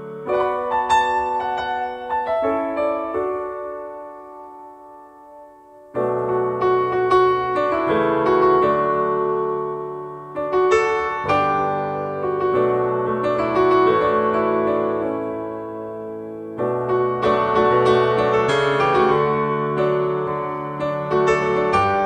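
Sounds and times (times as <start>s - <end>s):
piano chords: 0.0s - 22.0s.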